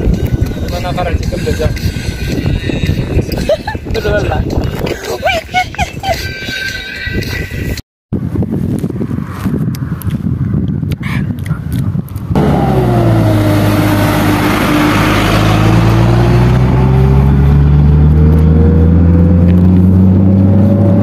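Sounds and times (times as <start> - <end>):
vehicle engine running with whine: 12.3 - 21.0.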